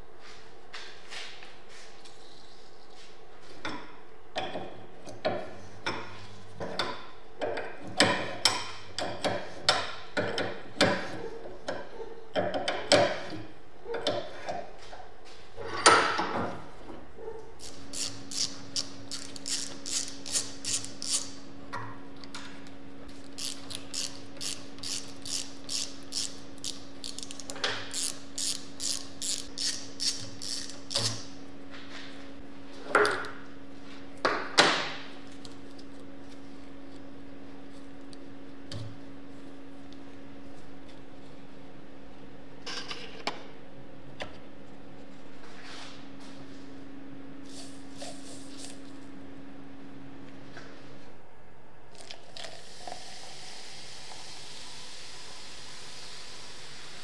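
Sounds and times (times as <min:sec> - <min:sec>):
fast ratchet clicking: 0:23.4 - 0:31.1.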